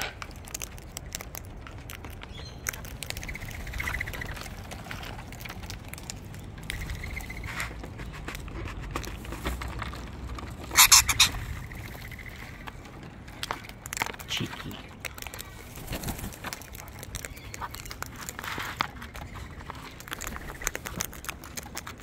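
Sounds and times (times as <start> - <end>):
beaks clicking at food: 0.0 - 22.0
lorikeets chattering trills: 10.7 - 12.5.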